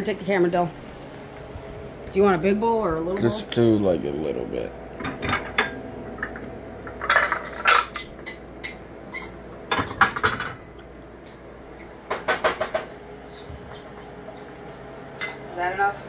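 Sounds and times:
ceramic dishes clattering: 5.0 - 10.8.

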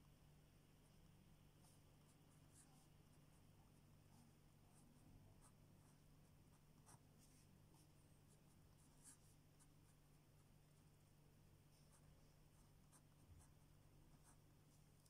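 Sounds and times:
low steady hum: 0.0 - 15.0
pen scratching on paper: 5.4 - 11.0, 11.7 - 15.0.

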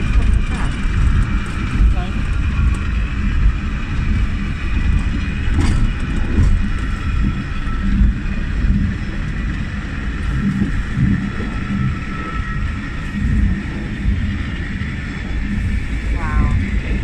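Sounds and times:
wheels rumbling on rails: 0.0 - 17.0.

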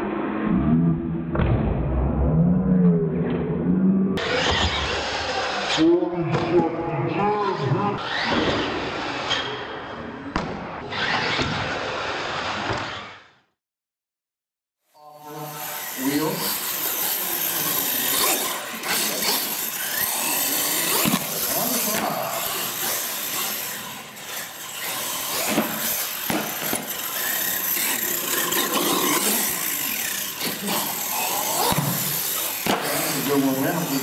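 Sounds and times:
toy truck motor whining: 4.2 - 5.9, 15.2 - 34.0.

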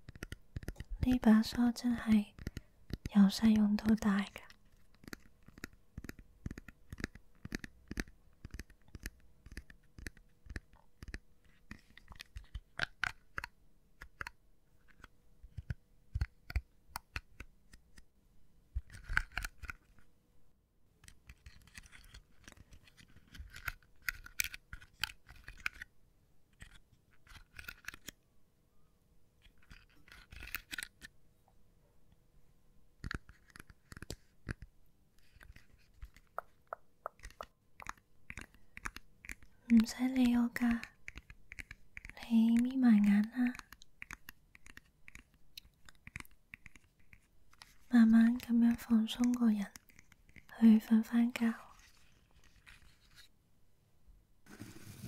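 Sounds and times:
hairbrush scratchy rustling: 54.5 - 55.0.

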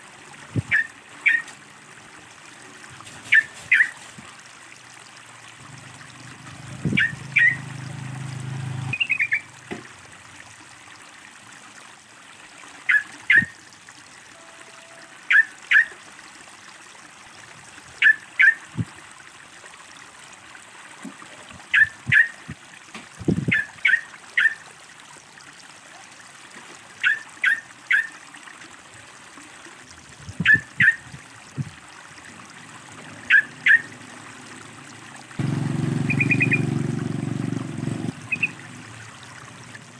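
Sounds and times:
trickle of running water: 0.0 - 39.9
bulbul calling: 0.7 - 1.5, 3.3 - 4.0, 6.9 - 7.7, 8.9 - 9.5, 18.0 - 18.6, 21.7 - 22.4, 30.4 - 31.0, 33.2 - 34.0, 36.0 - 36.8, 38.2 - 38.6.

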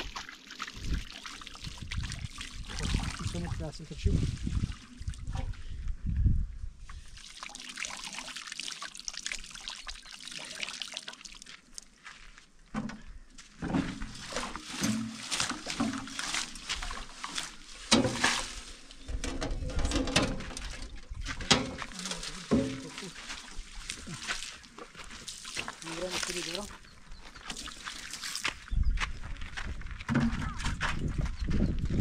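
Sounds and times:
water pouring and splashing: 0.0 - 5.5, 6.9 - 12.2, 13.6 - 26.8, 27.4 - 28.7
wheelbarrow knocks: 13.6 - 16.5, 17.8 - 20.8, 21.4 - 23.0.

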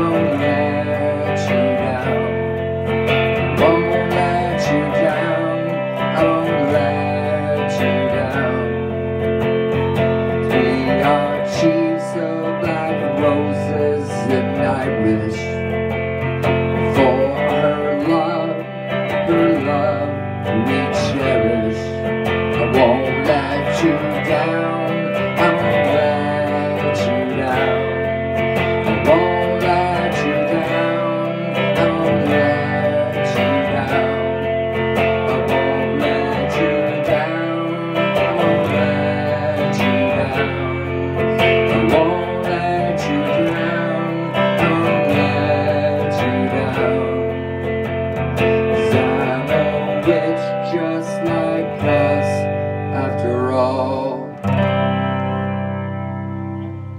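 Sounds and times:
guitar playing: 0.0 - 56.9.

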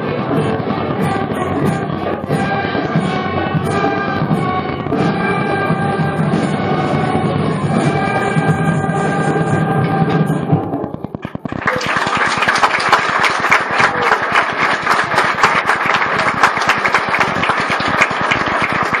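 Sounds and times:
audience applauding: 11.2 - 19.0.

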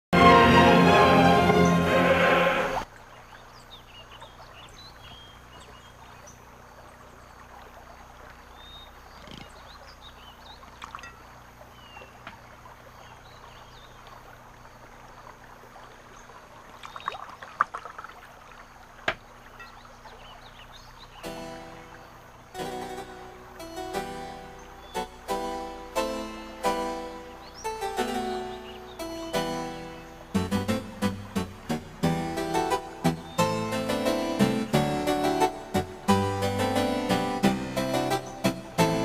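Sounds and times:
faint steady hiss: 18.2 - 39.0.

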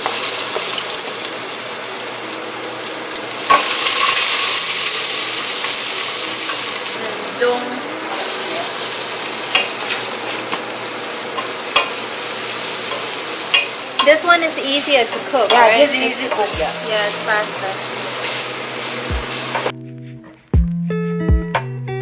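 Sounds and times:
spices sizzling in hot oil: 0.0 - 19.7
utensil knocking against pan: 11.4 - 12.0, 15.1 - 16.6.

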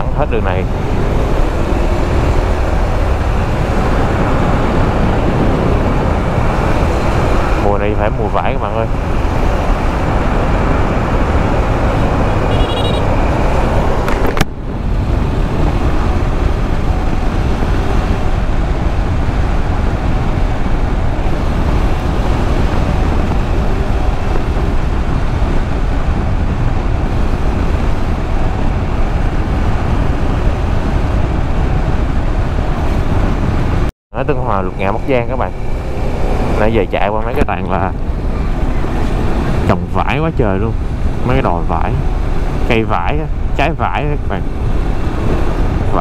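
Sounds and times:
wind and road noise: 0.0 - 46.0
motorcycle engine running: 9.0 - 33.7.

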